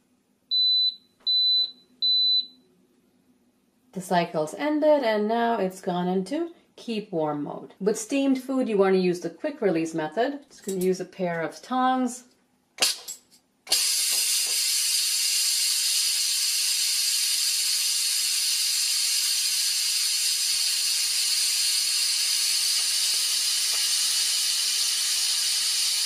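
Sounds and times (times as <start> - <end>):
steam hissing from valve: 13.7 - 26.0.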